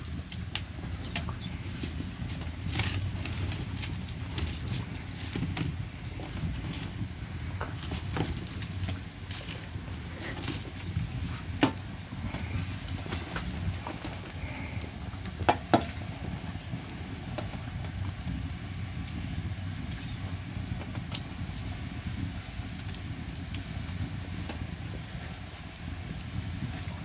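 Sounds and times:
dough sizzling in hot oil: 0.0s - 27.0s.

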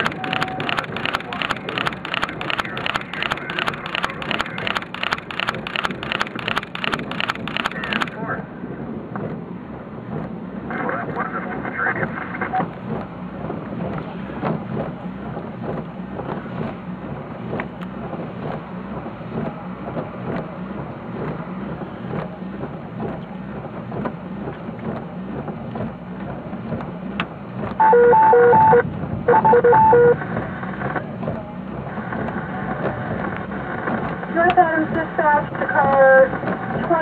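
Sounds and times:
wind buffeting microphone: 0.0s - 27.8s, 28.6s - 29.4s
pulsing electronic beeps: 27.8s - 30.2s.

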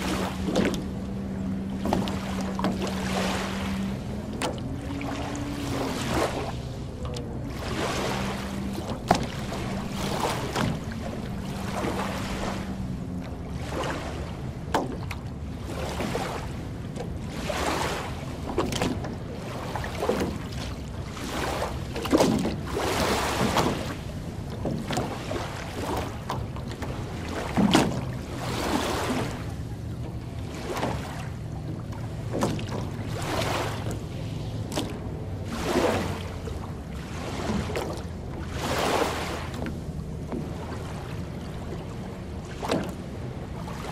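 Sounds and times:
steady low hum: 0.0s - 22.0s
small waves lapping on shore: 0.0s - 43.9s.

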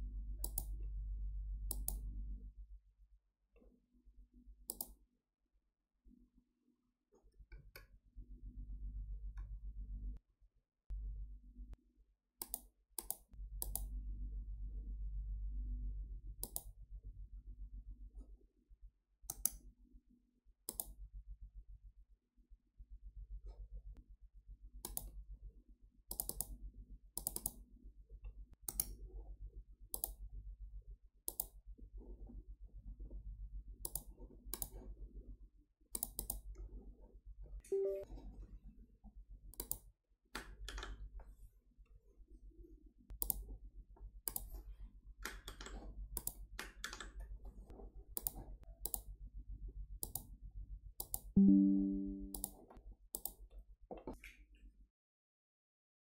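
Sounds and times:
low steady hum: 0.0s - 2.9s, 13.4s - 18.1s, 51.4s - 52.5s
computer mouse clicking: 0.4s - 0.8s, 1.7s - 2.1s, 4.7s - 5.0s, 12.4s - 13.9s, 16.4s - 16.8s, 19.3s - 19.6s, 20.7s - 21.0s, 24.8s - 25.2s, 26.1s - 26.6s, 27.2s - 27.6s, 28.6s - 29.1s, 29.9s - 30.2s, 31.3s - 31.6s, 33.8s - 34.8s, 35.9s - 36.7s, 39.5s - 41.0s, 43.1s - 43.5s, 44.2s - 47.4s, 48.1s - 49.1s, 50.0s - 50.3s, 51.0s - 51.4s, 52.3s - 53.4s
low computer chime: 37.7s - 38.1s, 51.4s - 52.4s
brief tone: 37.7s - 38.2s, 51.4s - 52.5s.

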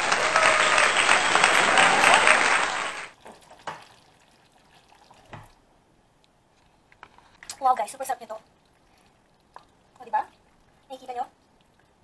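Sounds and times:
crowd clapping: 0.0s - 3.1s.

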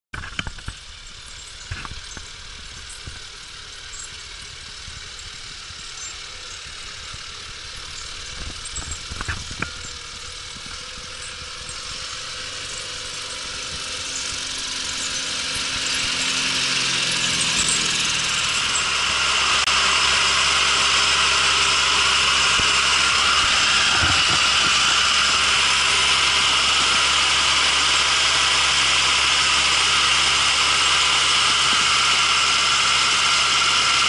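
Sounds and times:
tractor diesel engine approaching: 0.2s - 34.0s
hissing rush: 10.1s - 34.0s.

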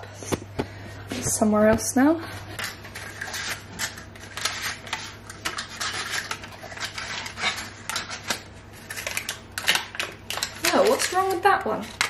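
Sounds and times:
paper muffin cases crinkling: 2.6s - 12.0s.

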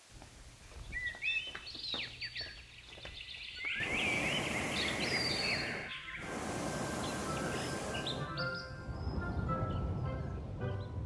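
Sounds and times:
birds chirping: 0.7s - 11.0s
steady rushing hiss: 3.6s - 8.6s.

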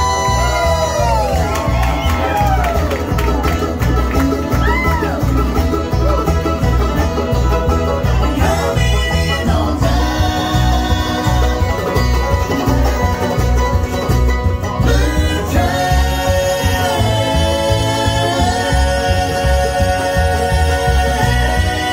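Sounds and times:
bluegrass band playing: 0.0s - 21.9s
person singing: 7.5s - 13.4s, 14.7s - 21.9s.

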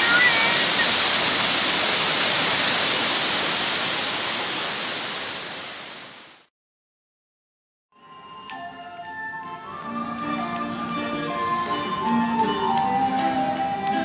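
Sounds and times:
waterfall roaring: 0.0s - 6.4s.

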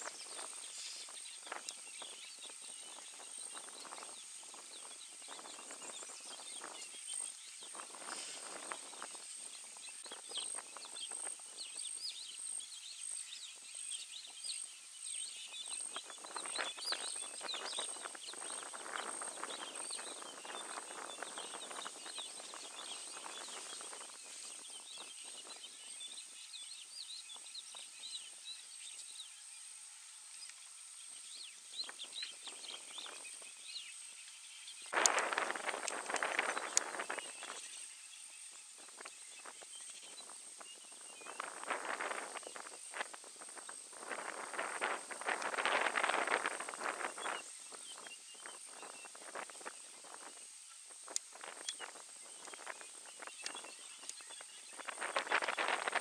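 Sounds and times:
high insect whine: 0.0s - 56.0s
rustling in brush: 7.9s - 9.0s.

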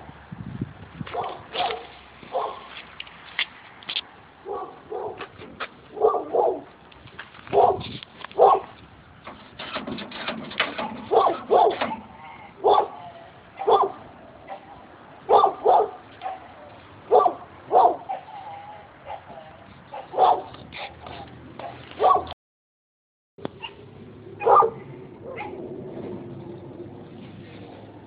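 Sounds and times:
dog barking: 1.1s - 2.7s, 4.4s - 5.2s, 5.9s - 6.7s, 7.5s - 8.7s, 11.1s - 22.4s, 24.4s - 25.6s.

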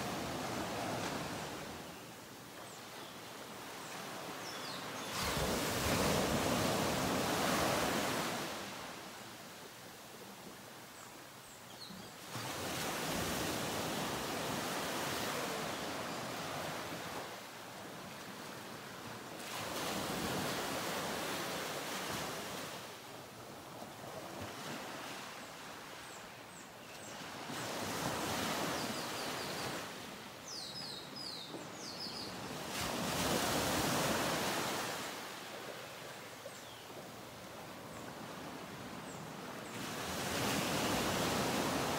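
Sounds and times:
surf washing onto beach: 0.0s - 1.8s.

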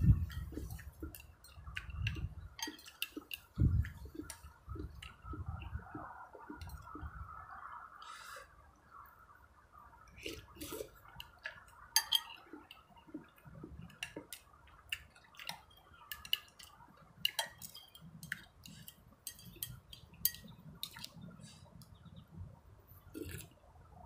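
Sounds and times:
spoon and chopsticks clinking on bowl: 0.2s - 3.6s, 12.0s - 12.5s, 15.4s - 21.0s.

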